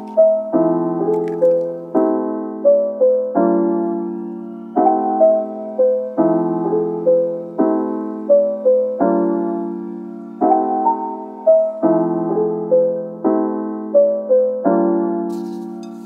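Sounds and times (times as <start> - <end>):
gentle piano music: 0.0 - 16.0.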